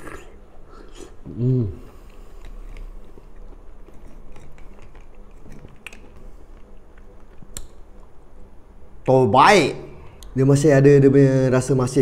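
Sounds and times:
wet chewing mouth sounds: 1.9 - 8.1.

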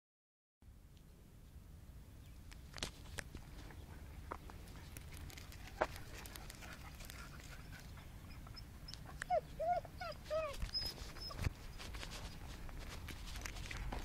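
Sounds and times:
dog whimpering: 8.3 - 11.5.

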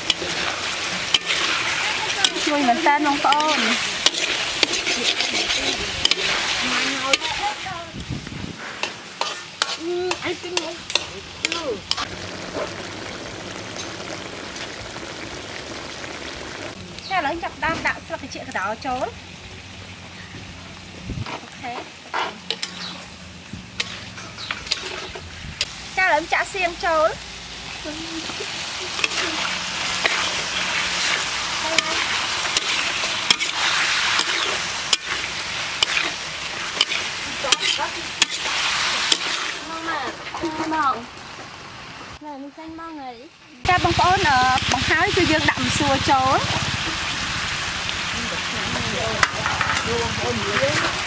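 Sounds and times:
metal spatula scraping wok: 0.0 - 7.8, 8.5 - 12.8, 21.2 - 25.8, 27.8 - 40.7, 48.9 - 51.0
food sizzling in wok: 0.0 - 51.0.

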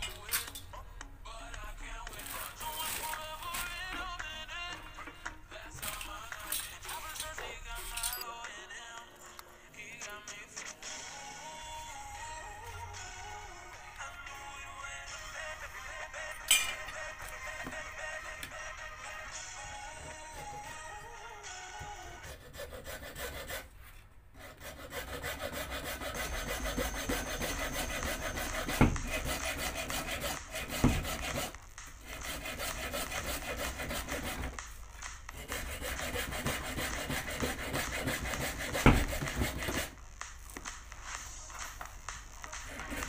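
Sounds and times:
hacksaw cutting plastic: 2.1 - 4.2, 5.8 - 8.2, 22.2 - 23.7, 24.4 - 34.7, 35.3 - 40.0.

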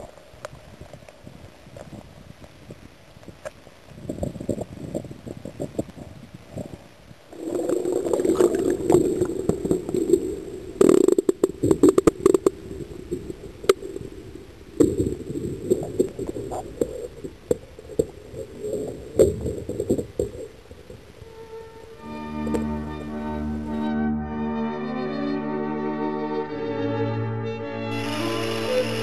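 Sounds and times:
muffled underwater sloshing: 7.3 - 21.8
underwater knocks and clicks: 7.4 - 13.9, 14.8 - 20.6.

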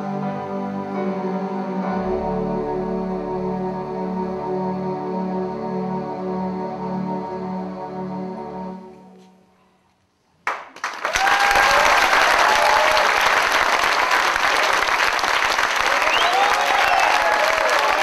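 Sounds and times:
audience applauding: 10.4 - 18.0
people cheering: 10.8 - 18.0.

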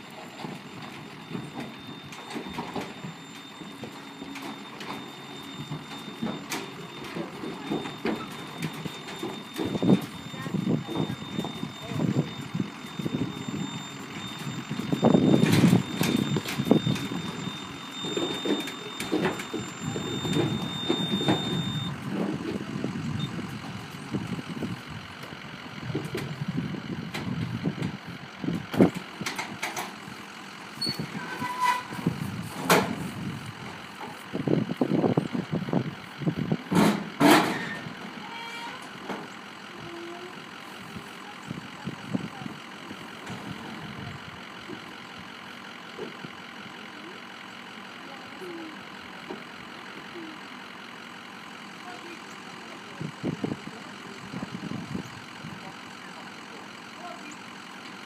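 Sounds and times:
metallic bangs from livestock trailer: 36.7 - 38.0.

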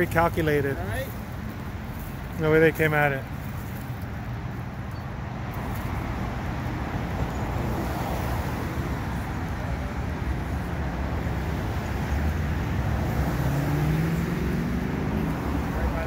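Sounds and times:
cars driving by: 0.0 - 16.0
car accelerating past: 12.0 - 16.0.

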